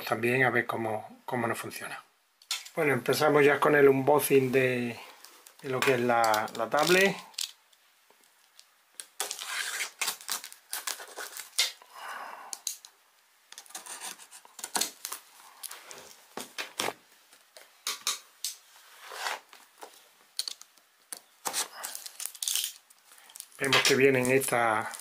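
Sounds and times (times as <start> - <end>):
knife scraping through plastic wrap: 9.2 - 11.8, 21.4 - 22.8.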